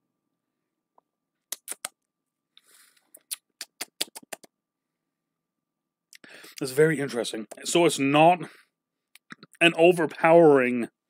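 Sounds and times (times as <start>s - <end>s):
lips and tongue smacking: 1.5s - 2.0s, 3.1s - 4.5s.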